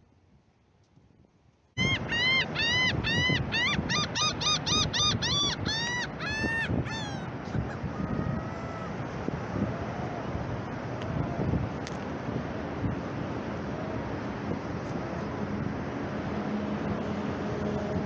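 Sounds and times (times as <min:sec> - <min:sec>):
wind: 0:00.0 - 0:18.0
gull calling: 0:01.8 - 0:09.1.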